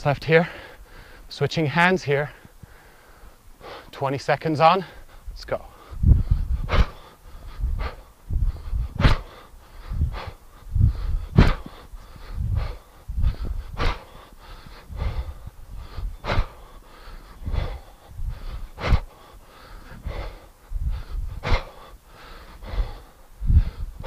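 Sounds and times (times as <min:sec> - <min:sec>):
man breathing hard: 0:00.2 - 0:01.4, 0:02.1 - 0:04.0, 0:04.8 - 0:24.0
sharp exhales: 0:05.7 - 0:23.9.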